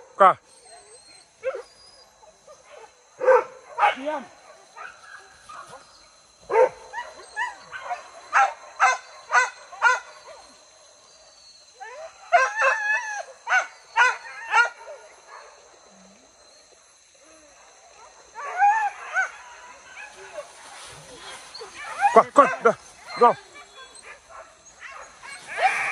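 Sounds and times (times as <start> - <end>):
dogs barking high-pitched: 2.5 - 5.8, 6.4 - 10.6, 11.8 - 15.6, 21.1 - 25.9.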